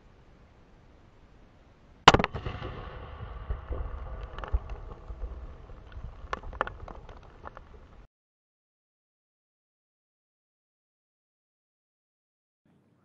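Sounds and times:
small cracks and thuds: 0:02.0 - 0:08.1
firework explosion bang: 0:02.1 - 0:06.3
low rumble: 0:02.3 - 0:08.1.

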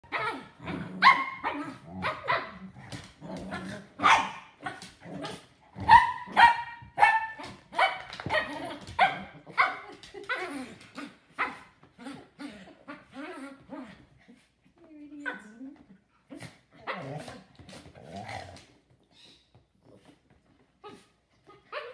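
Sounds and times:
dog growling: 0:00.1 - 0:04.0, 0:16.2 - 0:18.8
dogs barking: 0:04.0 - 0:04.7, 0:05.8 - 0:09.8.

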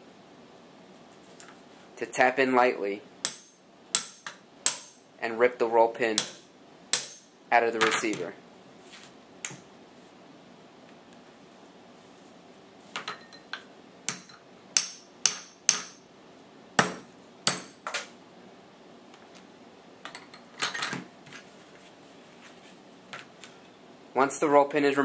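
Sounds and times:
hammer striking hammer metal: 0:03.2 - 0:05.0, 0:06.2 - 0:08.0, 0:14.1 - 0:16.0, 0:16.8 - 0:18.0
light metal clinks: 0:13.0 - 0:14.4.

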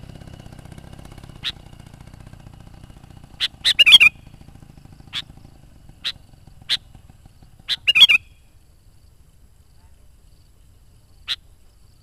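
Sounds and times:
bird calling sharp notes: 0:01.2 - 0:01.8, 0:03.2 - 0:08.6, 0:11.3 - 0:11.5
bird bubbling phrases: 0:01.4 - 0:01.6, 0:03.4 - 0:04.1, 0:07.6 - 0:08.3.

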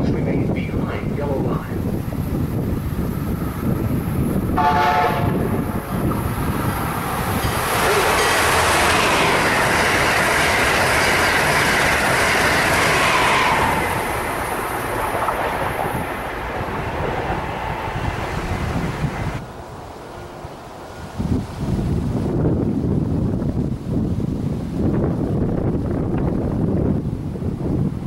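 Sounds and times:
train passing with loud rush: 0:00.0 - 0:28.0
train horn blast: 0:04.5 - 0:05.6.

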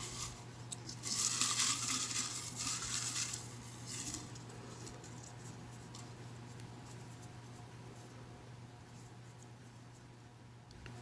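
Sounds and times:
paper slips rustling in a jar: 0:00.0 - 0:05.4.

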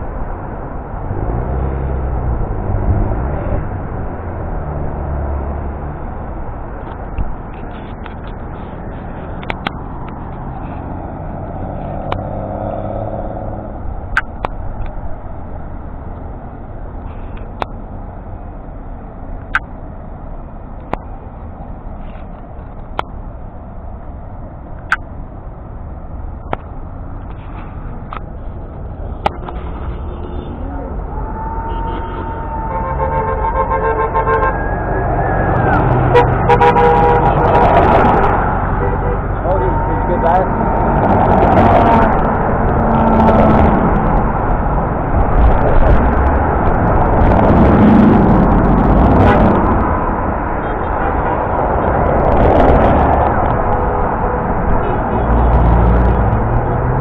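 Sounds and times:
road noise: 0:00.0 - 0:57.0
vehicle engine hum: 0:00.0 - 0:57.0
wind noise: 0:40.5 - 0:57.0.

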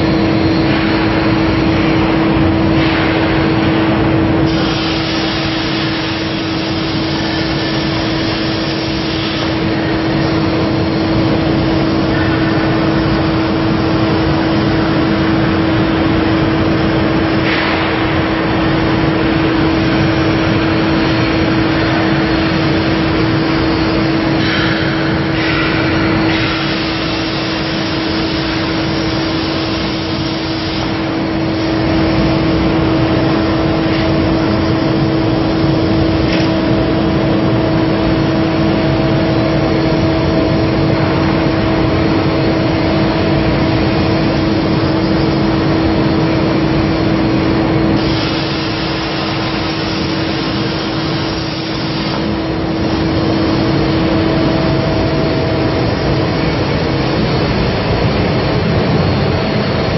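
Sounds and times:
steady machine hum: 0:00.0 - 0:59.9
plasma torch hissing: 0:04.4 - 0:11.1, 0:19.9 - 0:34.7, 0:47.9 - 0:54.1.

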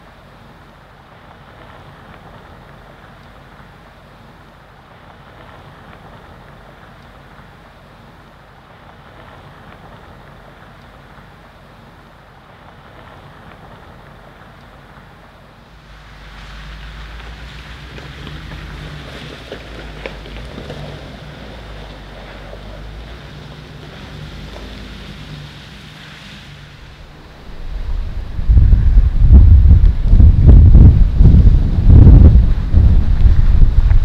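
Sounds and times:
bus engine running: 0:08.6 - 0:34.0
wind buffeting microphone: 0:26.6 - 0:34.0.

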